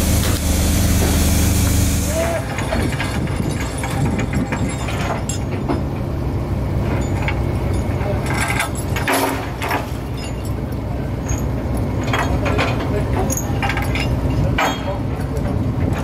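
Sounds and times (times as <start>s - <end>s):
boat engine rumbling: 0.0s - 16.0s
knocks and clinks: 2.5s - 5.9s, 6.9s - 15.4s.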